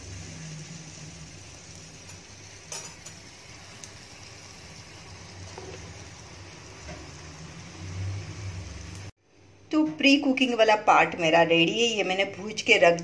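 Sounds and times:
gas burner flames roaring: 0:00.0 - 0:09.6.

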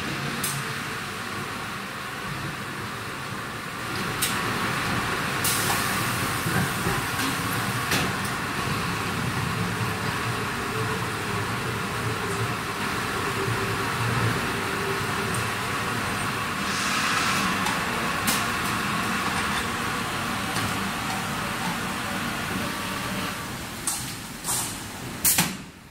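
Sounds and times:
water filling machine running: 0:04.2 - 0:25.3
short hiss: 0:16.6 - 0:17.6.

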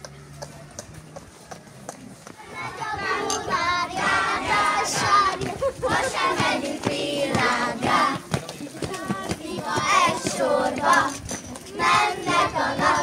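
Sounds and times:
children singing together: 0:02.4 - 0:08.2, 0:09.0 - 0:13.0.

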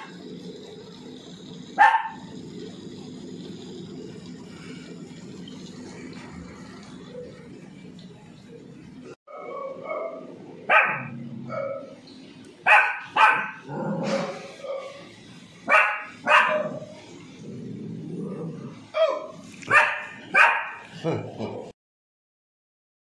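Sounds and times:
puppy barking: 0:01.8 - 0:02.2, 0:09.3 - 0:11.9, 0:12.7 - 0:13.7, 0:15.7 - 0:16.8, 0:19.0 - 0:20.9.

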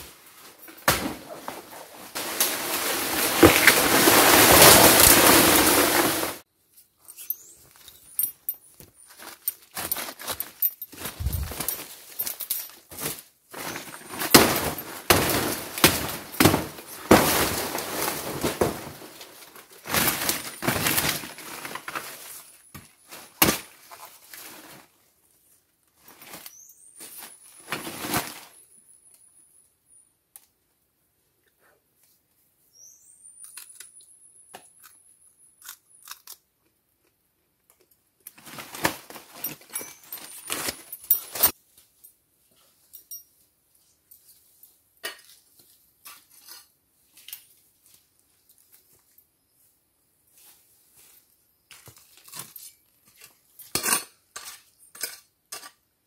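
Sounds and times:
dry leaves rustling and crackling: 0:01.5 - 0:06.4, 0:09.1 - 0:24.9.

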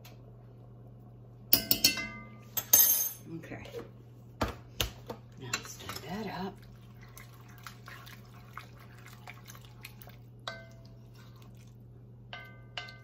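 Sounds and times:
spoon clinking on pot: 0:01.5 - 0:03.1, 0:10.5 - 0:10.9, 0:12.3 - 0:13.0.

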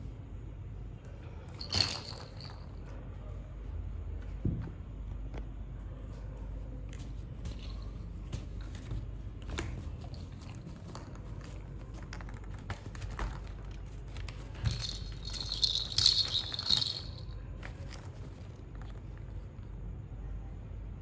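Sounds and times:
toy bell jingling: 0:01.6 - 0:02.6, 0:14.6 - 0:17.3.

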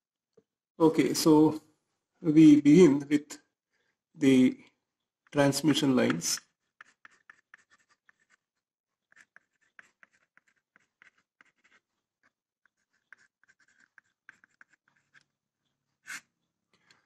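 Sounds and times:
chalk scratching on blackboard: 0:06.0 - 0:16.4.

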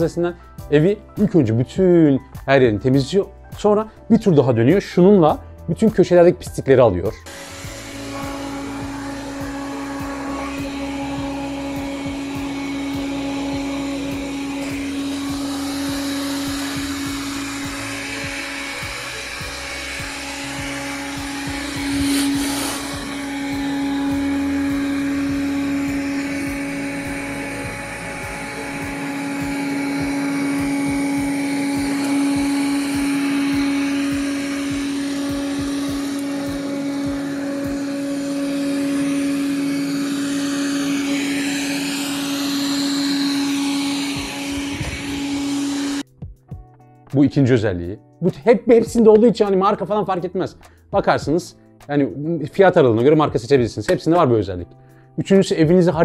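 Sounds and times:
robot vacuum humming: 0:07.3 - 0:46.0.

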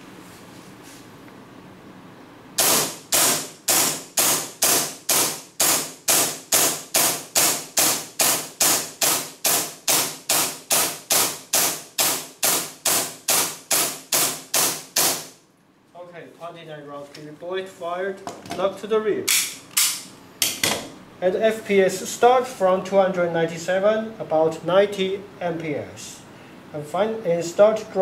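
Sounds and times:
airsoft pistol shots: 0:02.6 - 0:15.4.

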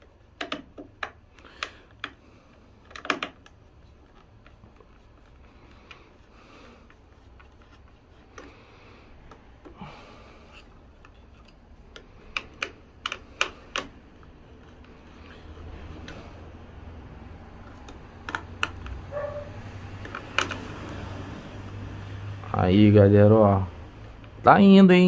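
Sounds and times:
tools clicking and tapping: 0:00.0 - 0:02.2, 0:02.8 - 0:06.1, 0:06.8 - 0:08.6, 0:10.5 - 0:16.2, 0:17.6 - 0:19.4, 0:20.0 - 0:20.7.

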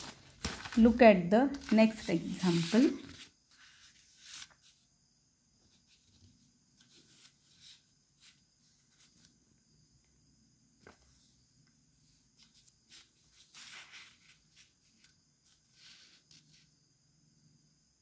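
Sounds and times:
paper sheets rustling: 0:00.0 - 0:04.8, 0:12.4 - 0:16.6.

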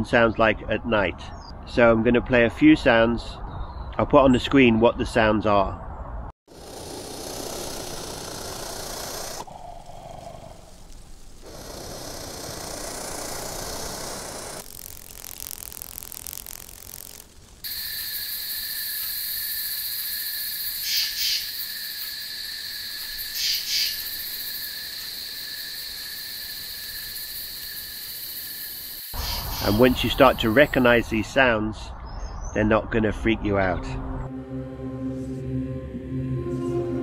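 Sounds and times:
flying insect whine: 0:06.5 - 0:31.0.

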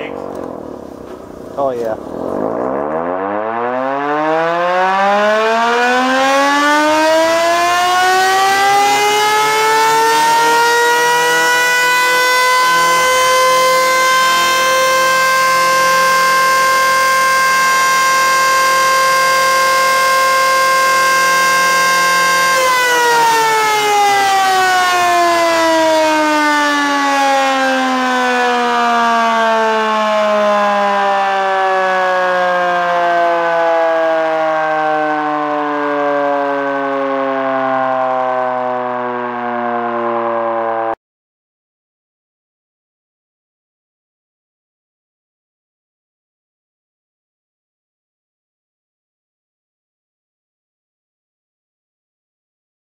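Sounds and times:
rotor siren wailing: 0:00.0 - 0:41.0.

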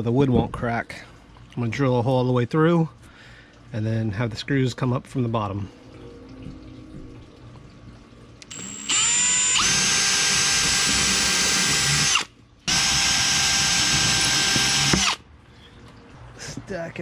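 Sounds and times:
cordless drill whining: 0:08.4 - 0:15.2.

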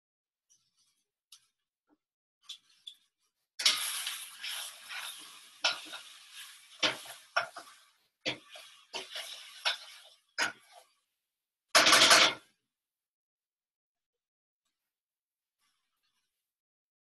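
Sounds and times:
metal tongs scraping saucepan: 0:03.6 - 0:07.7, 0:08.3 - 0:10.8
food sizzling: 0:03.6 - 0:11.0.

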